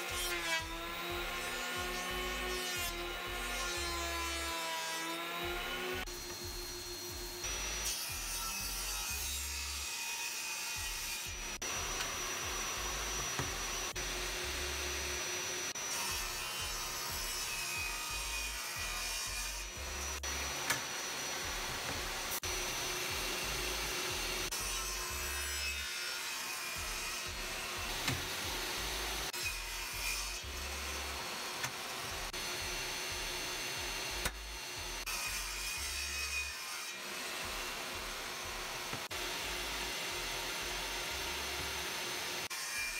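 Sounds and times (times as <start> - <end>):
table saw whine: 11.4 - 42.9.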